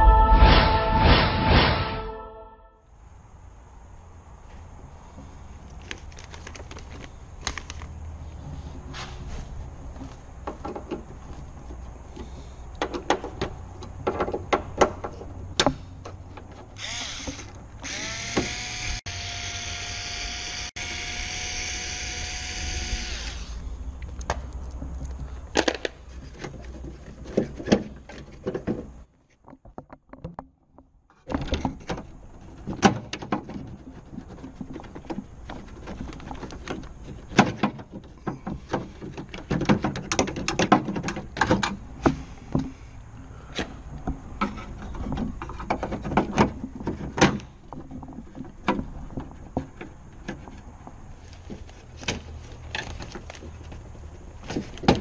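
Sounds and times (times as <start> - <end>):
power tool motor whine: 16.8 - 23.6.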